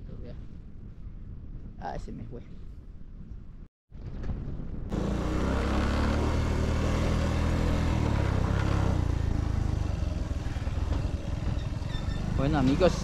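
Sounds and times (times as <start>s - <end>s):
motorcycle engine running: 4.9s - 13.0s.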